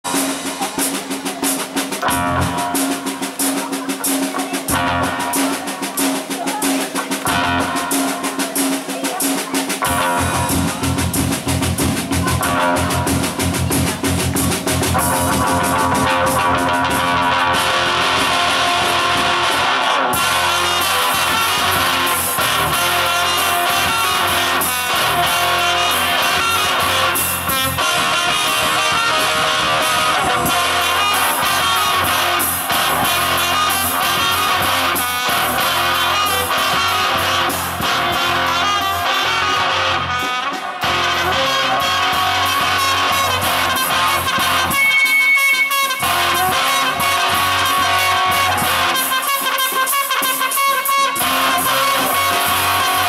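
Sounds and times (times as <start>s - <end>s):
electric guitar: 0.0s - 8.8s, 9.7s - 53.0s
drum kit with rimshots: 0.0s - 53.0s
trumpet: 0.0s - 53.0s
low bass line: 9.8s - 40.2s.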